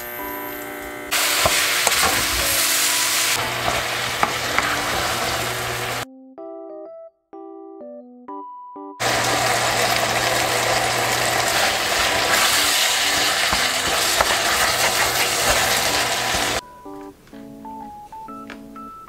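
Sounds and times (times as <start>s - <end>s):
meat sizzling in a pot: 1.1s - 6.0s, 9.0s - 16.6s
wooden spatula stirring: 10.0s - 16.6s.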